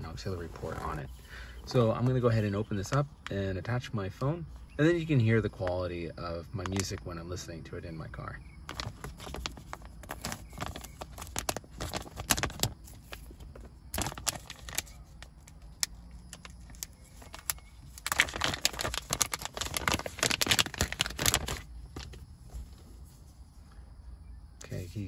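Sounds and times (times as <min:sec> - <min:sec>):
plastic pouch crinkling: 0:08.7 - 0:22.2.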